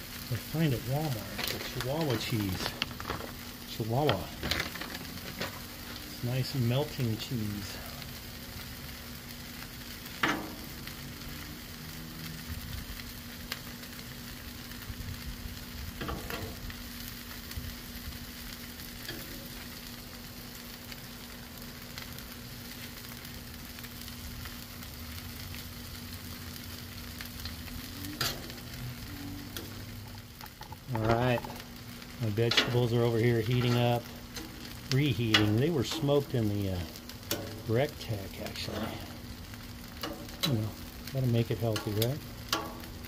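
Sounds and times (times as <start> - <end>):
food sizzling on griddle: 0.0 - 43.0
metal tongs clicking on griddle: 10.2 - 10.6, 28.2 - 28.7, 32.5 - 32.8, 37.2 - 37.6, 40.0 - 40.5, 41.7 - 43.0.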